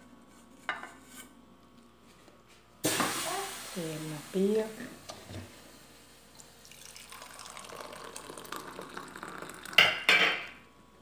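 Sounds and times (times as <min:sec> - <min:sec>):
coffee pouring into cup: 0:06.3 - 0:10.6.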